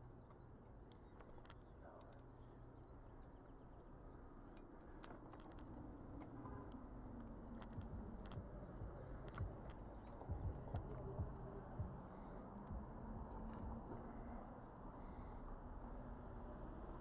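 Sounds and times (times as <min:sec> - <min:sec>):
light clicks and ticks: 0:04.4 - 0:11.1.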